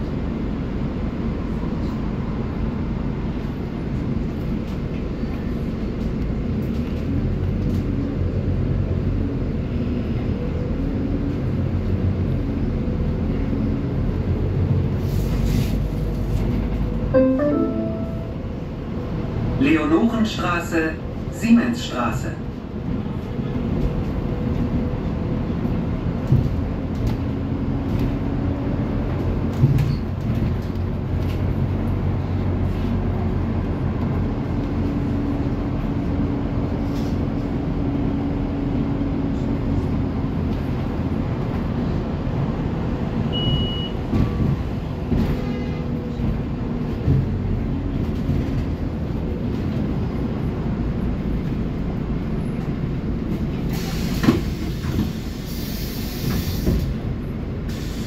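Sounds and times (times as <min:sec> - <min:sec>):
bus engine hum: 0:00.0 - 0:58.0
road noise: 0:00.0 - 0:58.0
short high beep: 0:17.2 - 0:18.5, 0:43.4 - 0:44.0.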